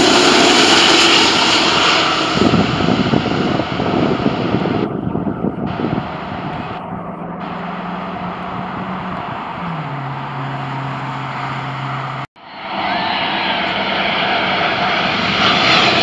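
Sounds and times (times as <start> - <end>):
jet aircraft rumble: 0.0 - 16.0
low engine tone: 0.0 - 16.0
road traffic passing: 0.0 - 16.0.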